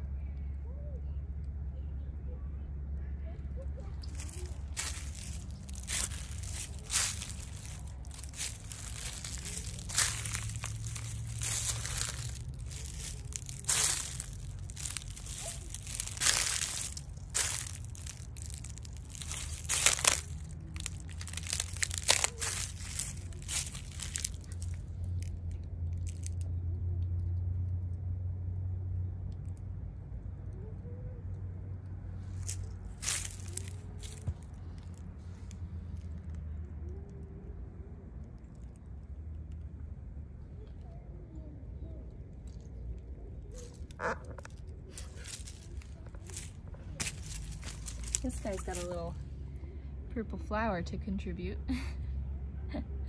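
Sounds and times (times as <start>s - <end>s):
steady low rumble: 1.4s - 28.0s, 32.1s - 52.6s
footsteps crunching on dry leaves: 4.0s - 25.3s, 26.0s - 26.4s, 32.3s - 35.0s, 43.5s - 49.2s.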